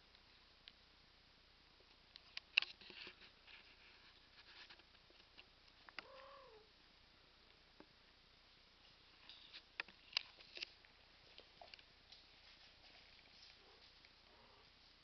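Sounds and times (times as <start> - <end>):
kitten mewing: 6.0 - 6.7.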